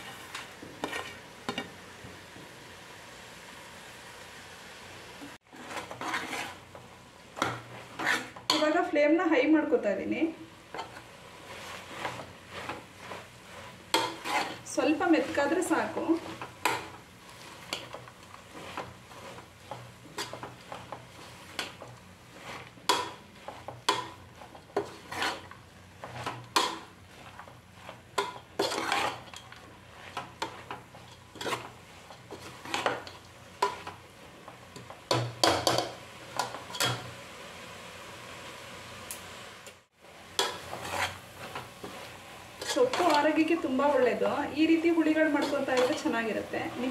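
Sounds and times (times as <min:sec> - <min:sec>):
greens sizzling: 0:00.0 - 0:46.9
metal ladle scraping a pot: 0:00.8 - 0:01.2, 0:05.5 - 0:06.6, 0:07.4 - 0:08.6, 0:14.0 - 0:14.6, 0:24.8 - 0:27.3, 0:28.2 - 0:29.4, 0:30.0 - 0:33.0, 0:40.4 - 0:41.6, 0:42.6 - 0:43.3.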